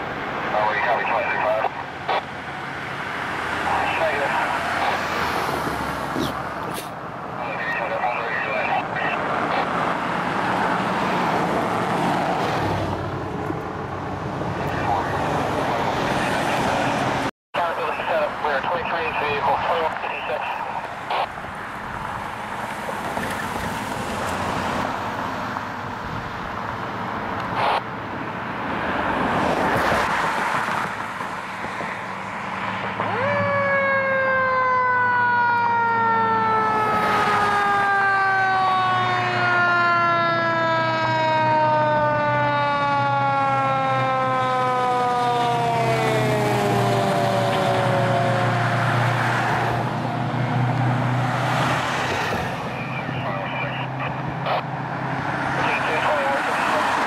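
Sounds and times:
fire engine siren wailing: 0.0 - 6.0, 6.9 - 12.8, 17.6 - 23.9, 32.3 - 57.0
road traffic noise: 0.0 - 57.0
truck engine drone: 0.0 - 57.0.

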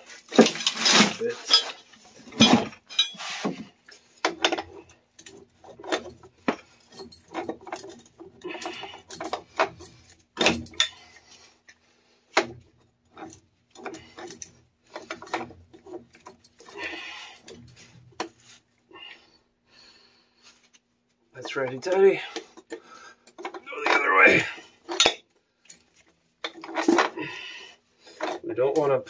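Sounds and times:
pipe wrench clinking on metal: 1.3 - 3.4, 4.2 - 11.3, 12.4 - 18.4, 21.5 - 25.8, 26.4 - 27.4.

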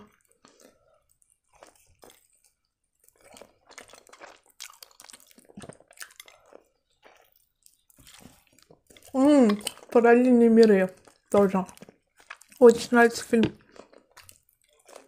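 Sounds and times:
person chewing crunchy pastry: 0.0 - 15.0.

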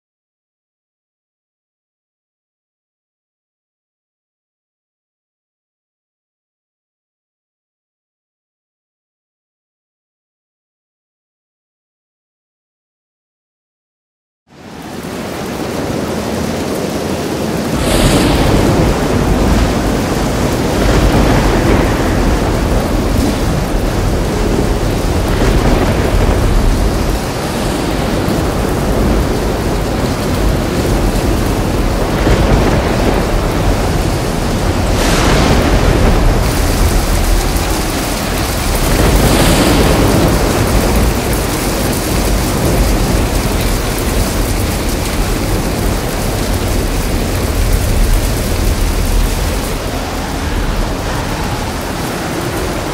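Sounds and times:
heavy rain pouring: 14.5 - 52.9
low thunder rumbling: 14.8 - 52.9.

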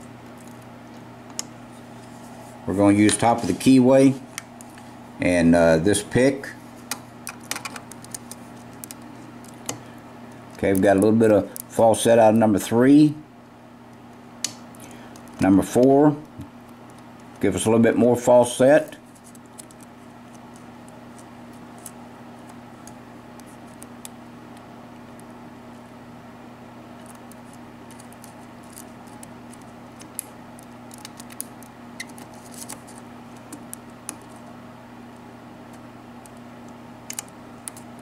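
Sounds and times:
steady low hum: 0.0 - 38.0
lock pick clicking and scratching: 7.3 - 9.7.

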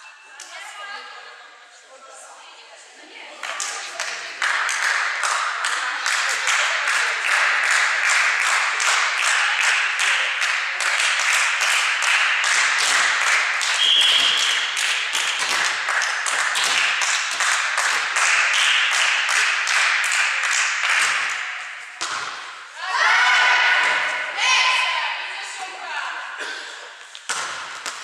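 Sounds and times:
crowd clapping in rhythm: 3.4 - 22.6, 27.1 - 28.0
whistle blast: 13.8 - 14.7.

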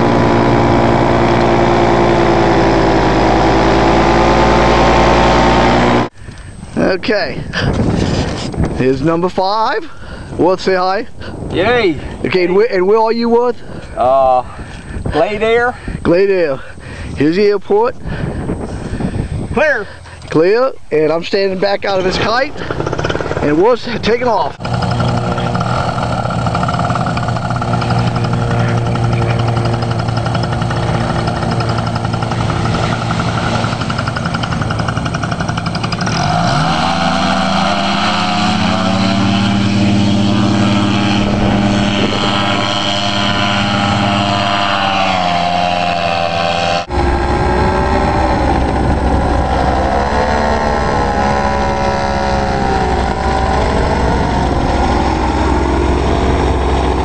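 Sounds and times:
paramotor engine and propeller: 0.0 - 6.8, 21.6 - 57.0.

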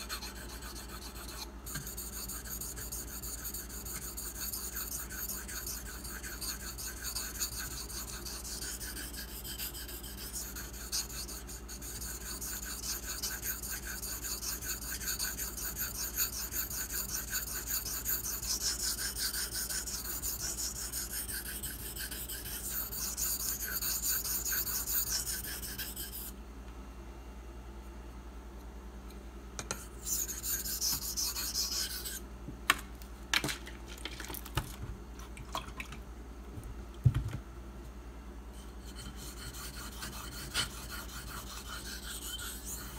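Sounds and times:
blade scraping on whetstone: 0.0 - 26.3, 29.7 - 32.2, 38.6 - 42.9.

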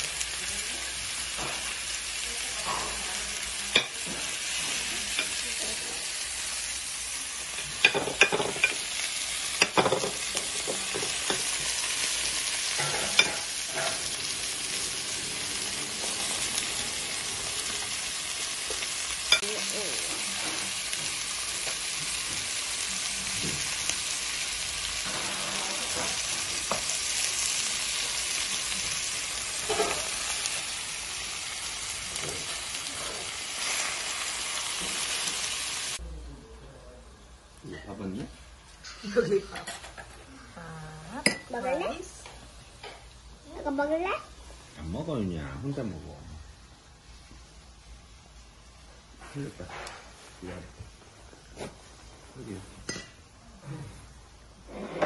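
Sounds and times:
food sizzling on hot plate: 0.0 - 36.0, 37.2 - 55.0
metal tableware clinking: 7.8 - 8.8, 12.8 - 14.2, 29.6 - 30.1, 39.5 - 40.2.

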